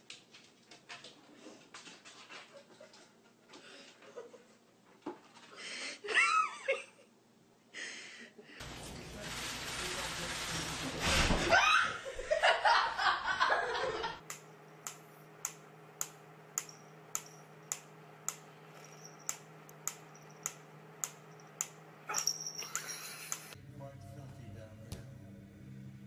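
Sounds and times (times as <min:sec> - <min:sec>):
person laughing: 0:06.0 - 0:07.1, 0:11.5 - 0:14.2, 0:22.6 - 0:23.6.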